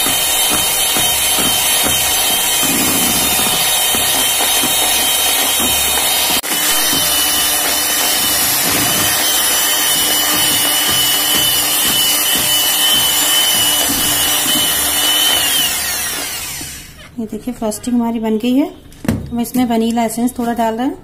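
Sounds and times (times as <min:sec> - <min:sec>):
electric hand mixer whining: 0:00.0 - 0:17.0.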